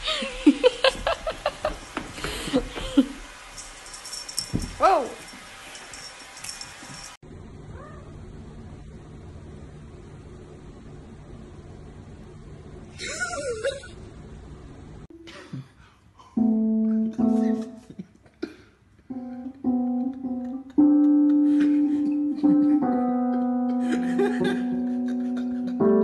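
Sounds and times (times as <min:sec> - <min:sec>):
synthesizer keyboard held notes: 0:16.4 - 0:18.1, 0:19.1 - 0:26.0.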